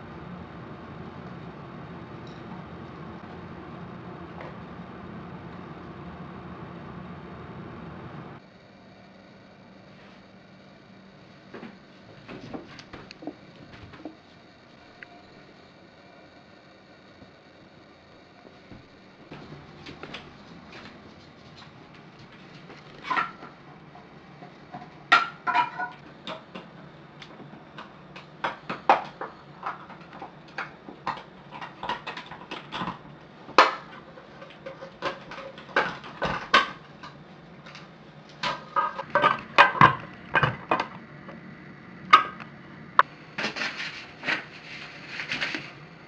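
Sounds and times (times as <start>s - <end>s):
paper sheet rustling: 43.4s - 45.8s.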